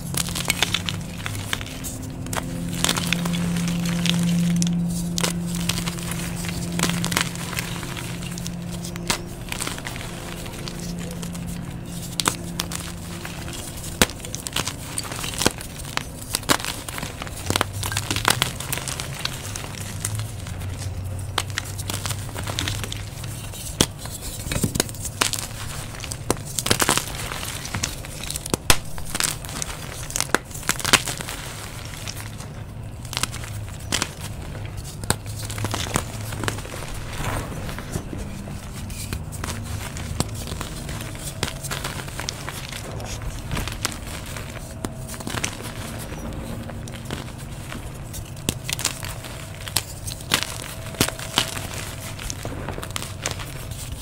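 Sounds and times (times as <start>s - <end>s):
chalk crunching and crackling: 0.0s - 54.0s.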